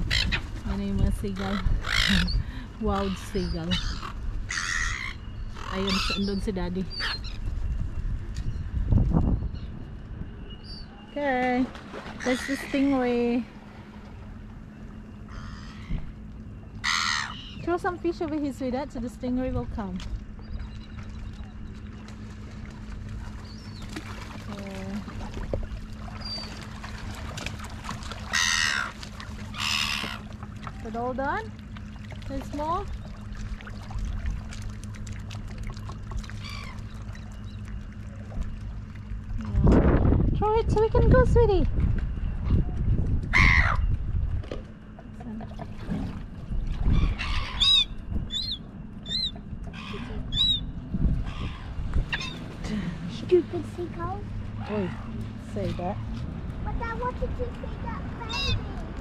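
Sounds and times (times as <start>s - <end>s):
gull squawks: 0.0s - 0.5s, 1.1s - 7.4s, 12.1s - 13.2s, 15.2s - 16.2s, 16.8s - 18.0s, 28.1s - 30.3s, 36.4s - 37.2s, 43.3s - 43.9s, 46.8s - 52.6s, 58.2s - 58.8s
gulls flapping and scuffling: 19.7s - 39.3s
lapping water: 20.6s - 40.0s.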